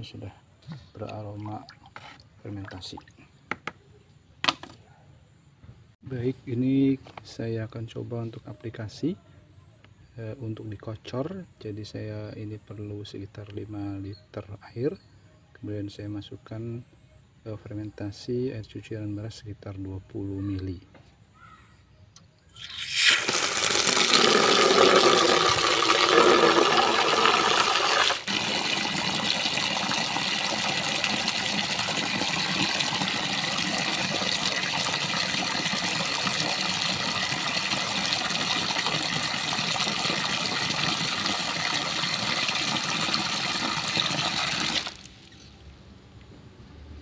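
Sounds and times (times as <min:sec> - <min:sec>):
water pouring into plastic tub: 0:22.6 - 0:45.4.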